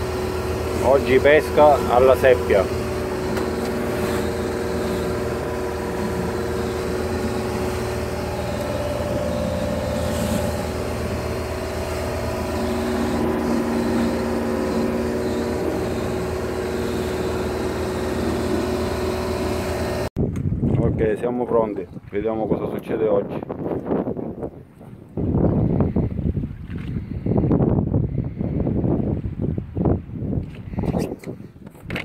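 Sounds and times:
water rushing along hull: 0:00.0 - 0:23.3
boat engine running: 0:00.0 - 0:29.7.

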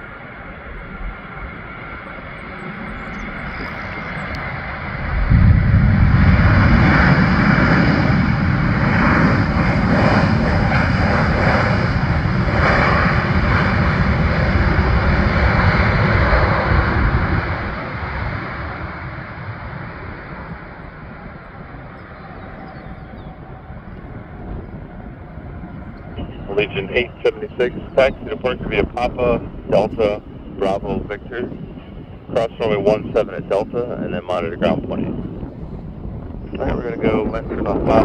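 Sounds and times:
jet engines reverse thrust: 0:00.0 - 0:38.0.

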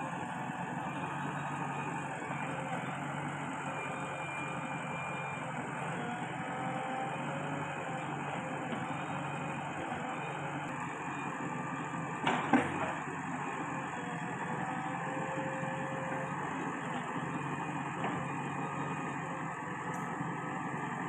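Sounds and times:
diesel engine running: 0:00.0 - 0:21.0
loud clunk: 0:12.2 - 0:13.0.

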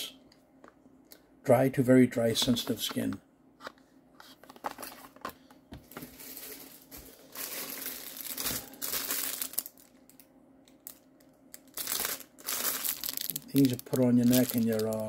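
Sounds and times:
plastic bag crinkling: 0:05.9 - 0:15.0.

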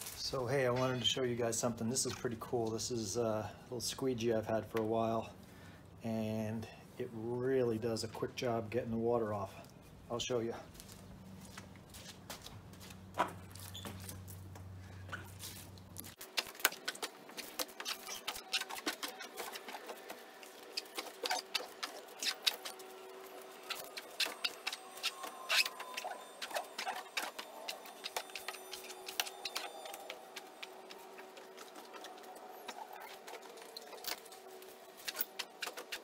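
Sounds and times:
squeegee squeaking on wet car: 0:16.3 - 0:36.0.

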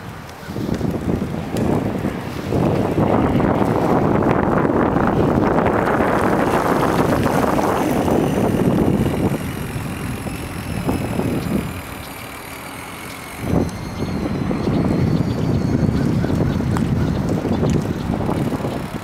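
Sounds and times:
wind on microphone: 0:00.0 - 0:19.0.

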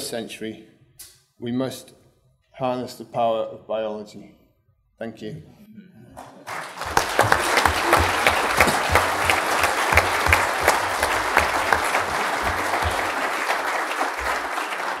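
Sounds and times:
audience applauding: 0:06.2 - 0:15.0.

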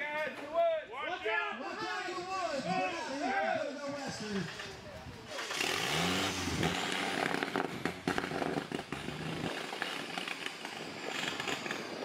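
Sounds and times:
engine running: 0:04.4 - 0:12.0.

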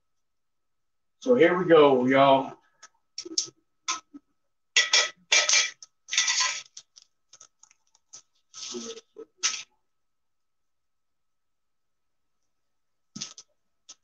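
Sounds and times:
plastic packaging crinkling: 0:06.1 - 0:09.6.

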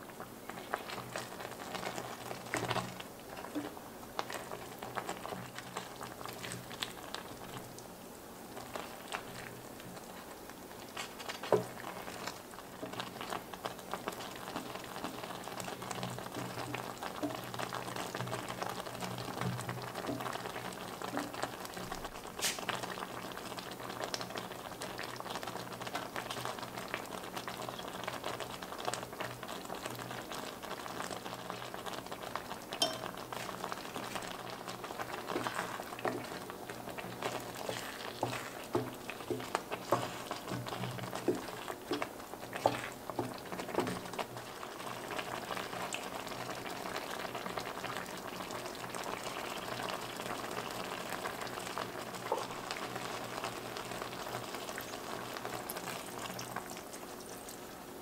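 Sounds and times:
pasta bubbling in a pot: 0:00.0 - 0:58.0
wooden spatula scraping a pot: 0:33.3 - 0:44.3.

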